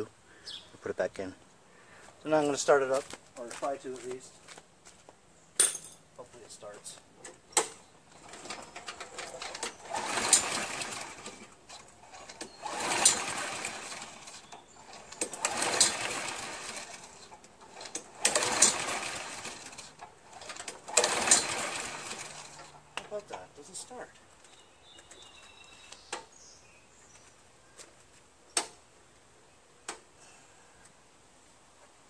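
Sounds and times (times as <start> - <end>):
mower engine pull-start cranking: 7.2 - 23.5.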